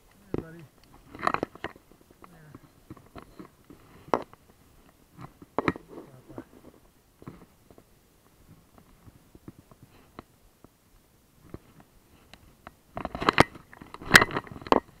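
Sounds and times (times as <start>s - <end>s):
camera handling clicks and rustles: 0.1s - 7.9s, 11.4s - 15.0s.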